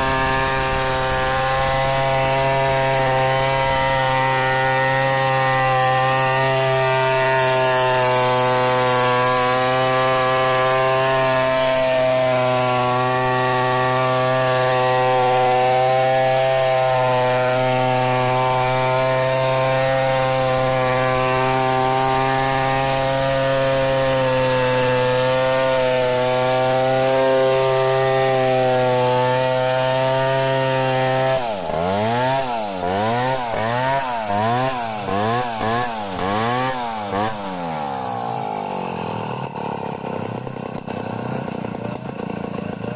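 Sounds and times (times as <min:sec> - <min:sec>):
chainsaw cutting through log: 0:00.0 - 0:42.9
chainsaw engine revving: 0:00.0 - 0:42.9.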